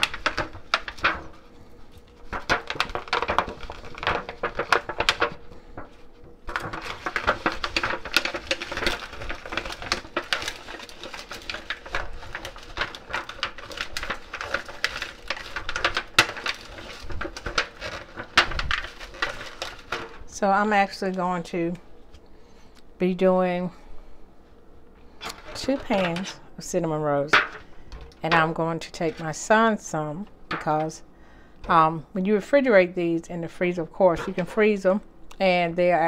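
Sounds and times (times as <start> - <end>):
foil pan crinkling and rattling: 0.0 - 21.5, 25.2 - 29.8, 30.5 - 31.0, 34.0 - 34.8.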